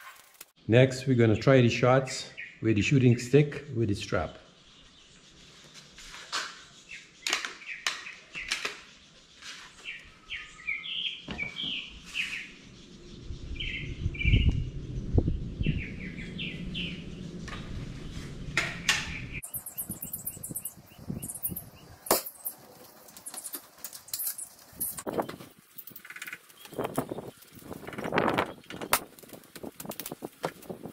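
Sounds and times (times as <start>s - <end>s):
small birds chirping: 1.2s - 30.9s
low rumble: 12.9s - 19.4s.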